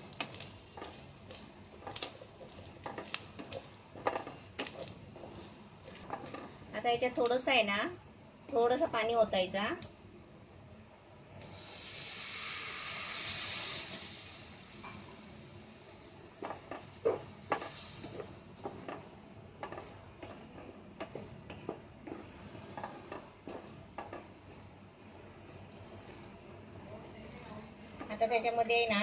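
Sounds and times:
spatula scraping and tapping pan: 0:00.0 - 0:06.6, 0:16.4 - 0:24.6
water sizzling in hot pan: 0:00.0 - 0:07.3, 0:11.3 - 0:20.4.

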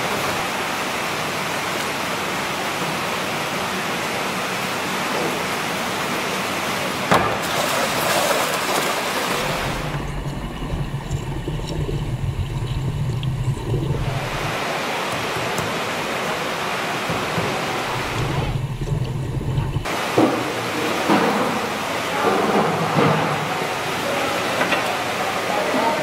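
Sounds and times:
water running and splashing: 0:00.0 - 0:22.1
muffled underwater rumble: 0:09.4 - 0:14.6, 0:17.2 - 0:19.9.

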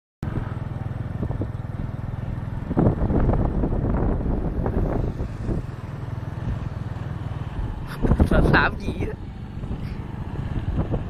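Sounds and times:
motor scooter engines running: 0:00.2 - 0:11.0
wind buffeting microphone: 0:00.2 - 0:11.0.

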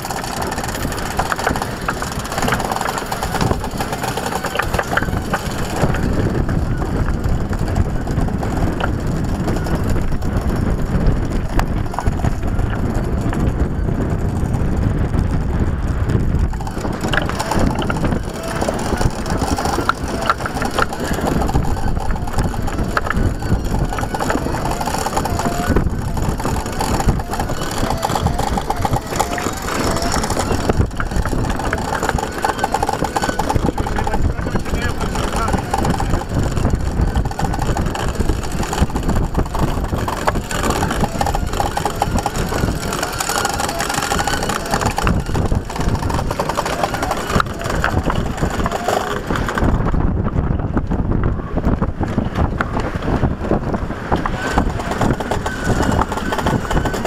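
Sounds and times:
rigging clicking and knocking: 0:00.0 - 0:51.0, 0:51.6 - 0:57.0
boat engine low rumble: 0:00.0 - 0:57.0
wavering squeak: 0:16.5 - 0:49.3, 0:54.3 - 0:57.0.

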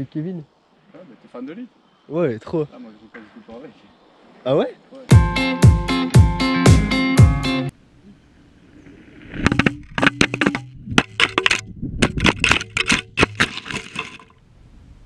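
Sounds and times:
guitar music: 0:05.1 - 0:07.7
camera falling and clattering: 0:09.4 - 0:14.3.

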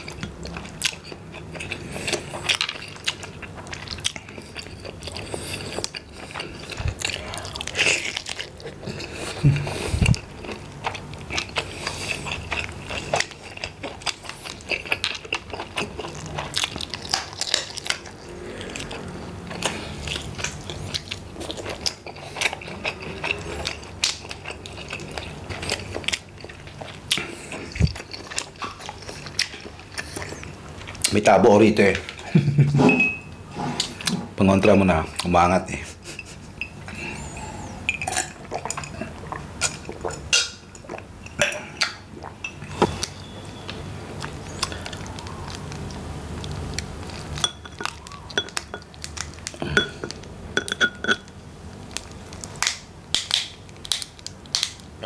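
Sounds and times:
chewing and mouth noises: 0:00.0 - 0:32.5, 0:35.0 - 0:54.9
prawn shells crackling: 0:44.2 - 0:50.4.

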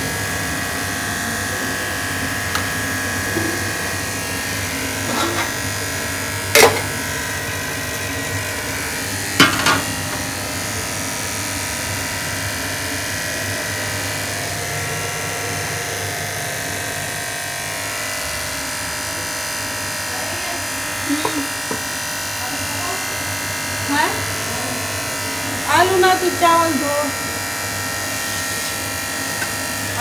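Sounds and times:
gas burner flame hissing: 0:00.0 - 0:15.0, 0:20.1 - 0:30.0.

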